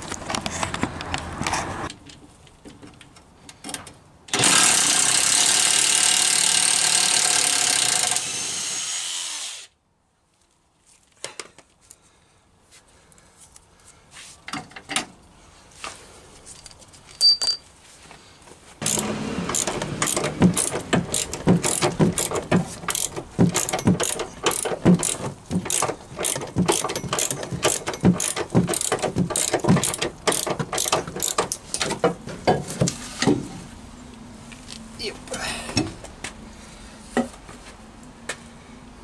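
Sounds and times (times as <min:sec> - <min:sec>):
ratchet wrench clicking: 0:18.8 - 0:31.6
knocks: 0:20.0 - 0:33.4.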